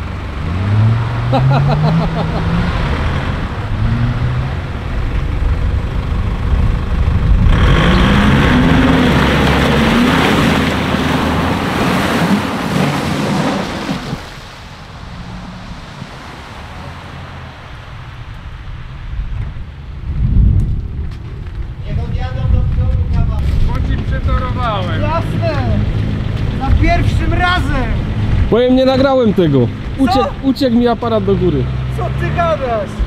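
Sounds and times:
off-road engine revving: 0:00.0 - 0:33.0
mud and water splashing: 0:06.6 - 0:20.1.

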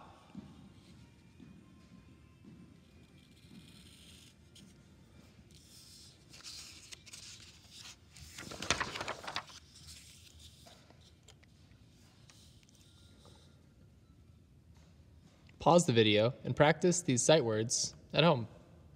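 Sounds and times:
paper rustling and sliding: 0:05.5 - 0:11.4.

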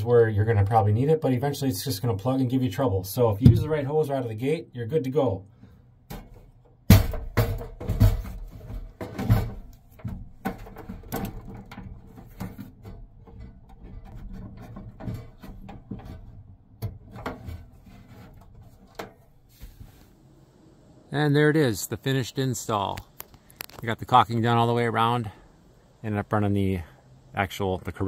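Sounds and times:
heater knocking and clunking: 0:03.3 - 0:03.9, 0:06.1 - 0:19.9
light taps and rustles: 0:07.4 - 0:20.1.

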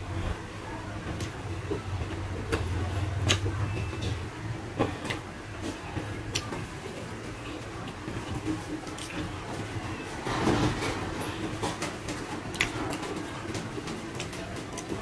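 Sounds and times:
person chewing wetly: 0:06.0 - 0:06.6, 0:07.4 - 0:09.4, 0:12.1 - 0:13.1.

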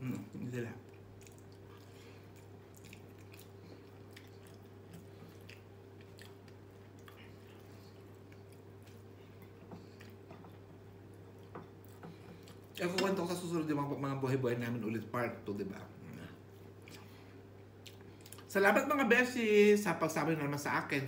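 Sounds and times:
person chewing: 0:00.2 - 0:12.8, 0:16.0 - 0:18.5.

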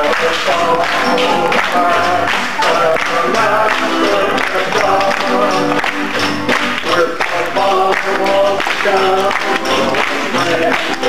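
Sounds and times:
group singing gospel song: 0:00.0 - 0:05.9, 0:06.8 - 0:11.0
guitar and keyboard: 0:00.0 - 0:11.0
people clapping along: 0:00.0 - 0:11.0.

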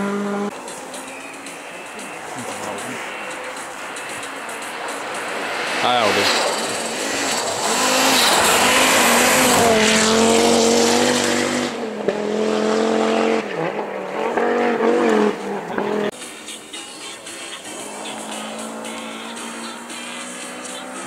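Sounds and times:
rally car passing at speed: 0:00.0 - 0:16.4, 0:17.1 - 0:21.0
car engine revving: 0:00.0 - 0:21.0.

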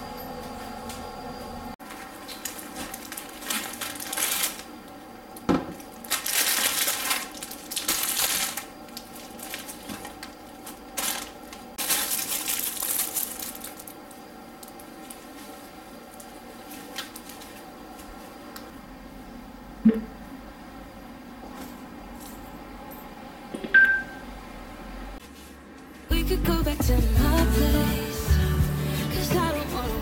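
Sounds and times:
bags rustling and crinkling: 0:01.8 - 0:18.5.

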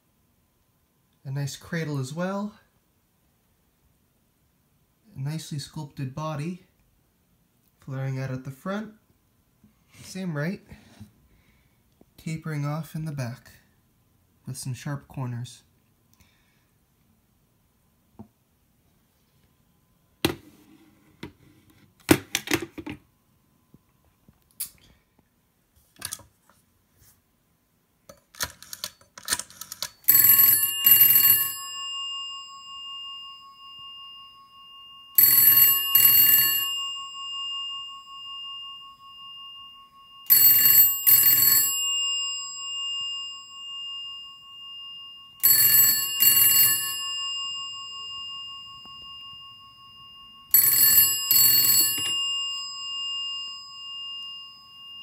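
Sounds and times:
telephone bell double ring: 0:29.8 - 0:55.0.

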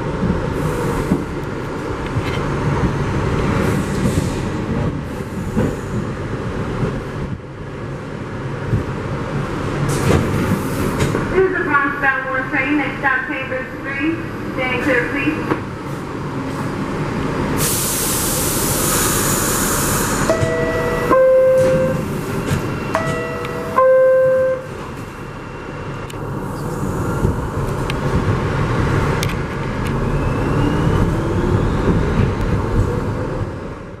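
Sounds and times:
train rumble: 0:00.0 - 0:34.0
air hiss: 0:17.6 - 0:20.3
two-note descending door chime: 0:20.3 - 0:22.0, 0:23.0 - 0:24.7.

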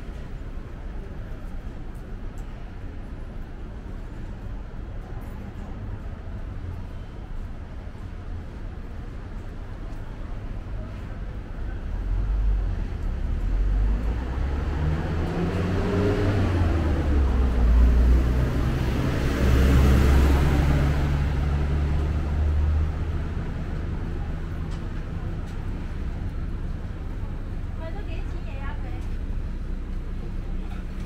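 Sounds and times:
vehicle engines running: 0:11.2 - 0:31.0.

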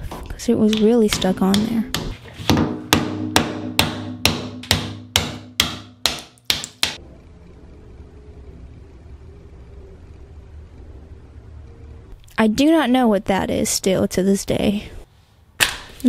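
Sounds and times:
hammer striking pry bar: 0:00.7 - 0:07.0.

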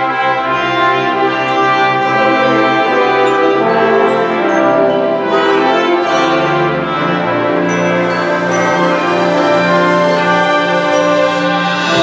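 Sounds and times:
orchestra strings: 0:00.0 - 0:12.0
orchestra brass section: 0:05.5 - 0:12.0.

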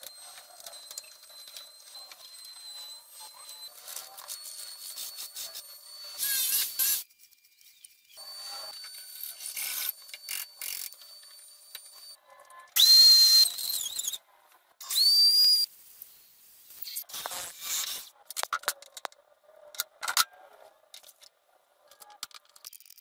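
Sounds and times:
drill whining boring into wood: 0:00.0 - 0:12.2, 0:12.8 - 0:14.2, 0:14.8 - 0:15.7, 0:16.8 - 0:18.1.

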